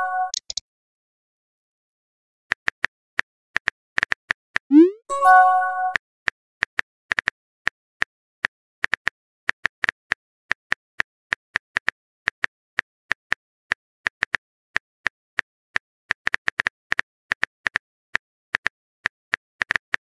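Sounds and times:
keyboard typing clicks: 0.3s - 0.6s.

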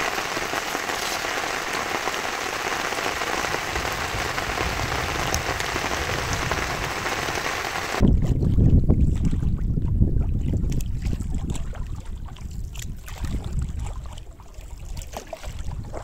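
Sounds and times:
steady rain pattering: 0.0s - 8.0s
wind rumble on microphone: 2.8s - 16.0s.

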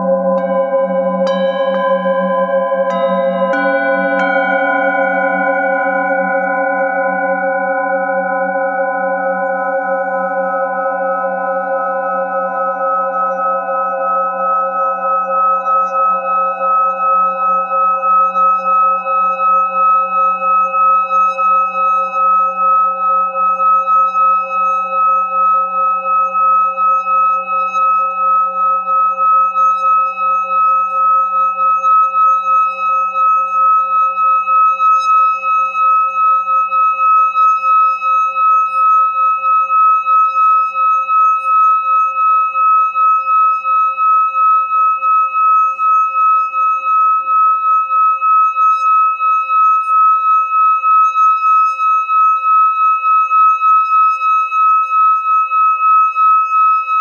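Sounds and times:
singing bowl ringing tone: 0.0s - 57.0s.

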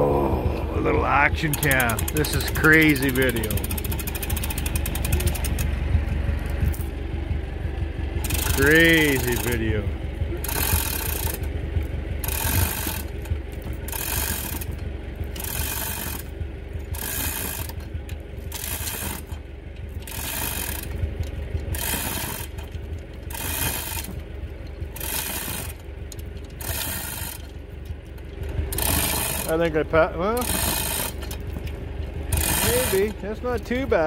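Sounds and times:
tractor engine running: 0.0s - 34.0s
mechanical rattling of chains: 0.8s - 5.8s, 8.2s - 34.0s.

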